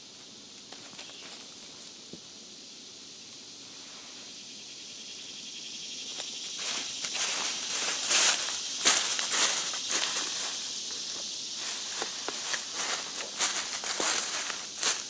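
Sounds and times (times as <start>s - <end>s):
high insect chorus: 0.0s - 15.0s.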